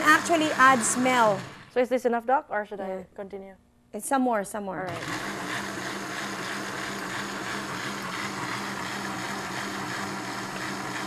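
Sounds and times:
blender motor humming: 0.0s - 1.8s, 4.9s - 11.0s.

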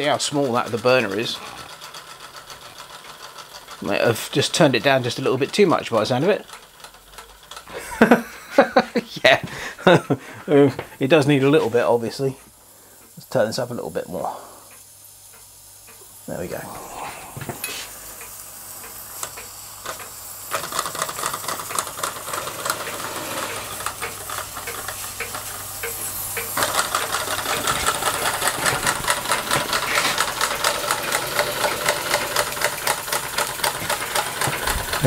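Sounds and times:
steam engine ticking and chuffing: 0.0s - 16.6s, 17.6s - 35.0s
hiss of steam: 9.5s - 24.2s, 24.9s - 35.0s.

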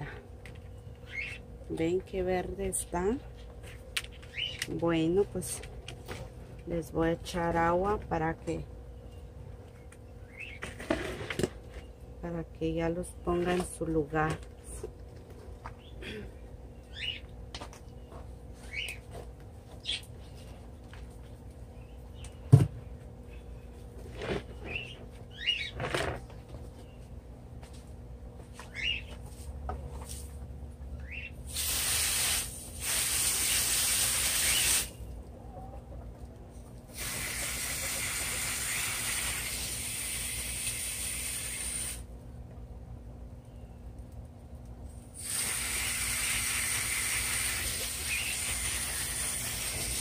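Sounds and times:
water spraying on plants: 31.5s - 35.0s, 36.9s - 42.1s, 45.1s - 50.0s.

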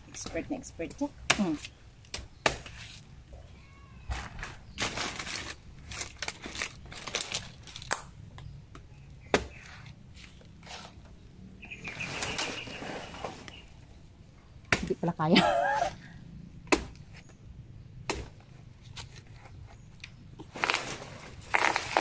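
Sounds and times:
rustling of dry leaves and brush: 4.1s - 8.1s, 8.9s - 14.0s, 20.4s - 22.0s.

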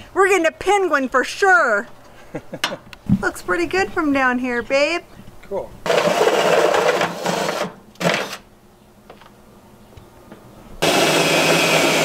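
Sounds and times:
cordless drill boring into sheet metal: 5.9s - 8.4s, 10.8s - 12.0s.

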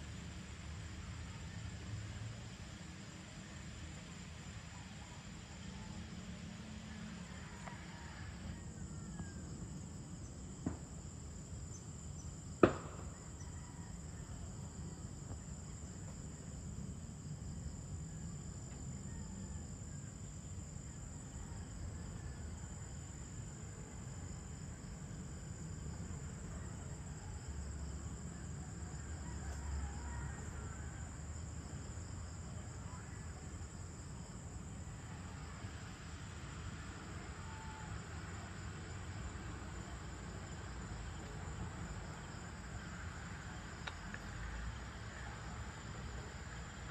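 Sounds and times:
insects droning: 0.0s - 46.9s.

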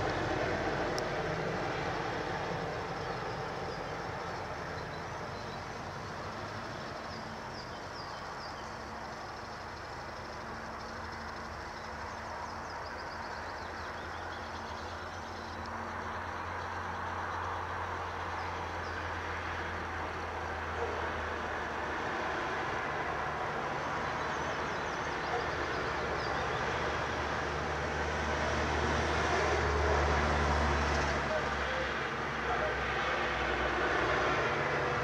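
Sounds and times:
faint birdsong: 0.0s - 33.1s
distant vehicle rumble: 0.0s - 35.0s.

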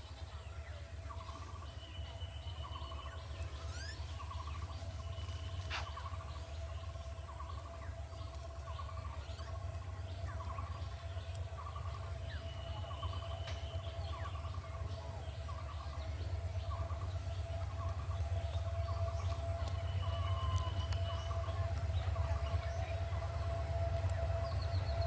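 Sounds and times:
locomotive engine rumbling: 0.0s - 25.0s
bird trilled call: 1.2s - 7.9s.

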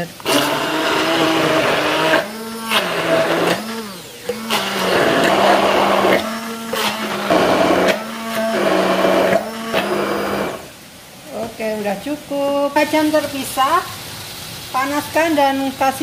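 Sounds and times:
hand blender motor hum: 0.2s - 10.7s
blade chopping food: 0.3s - 10.7s.

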